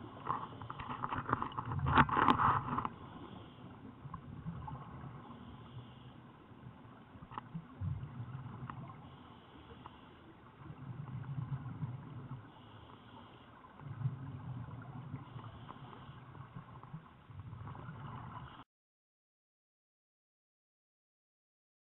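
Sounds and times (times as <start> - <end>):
regulator inhale hiss: 3.0 - 3.9, 9.1 - 10.4, 12.5 - 13.8
exhaled bubbles burbling underwater: 3.9 - 5.8, 6.6 - 9.3, 10.4 - 12.6, 13.6 - 18.6.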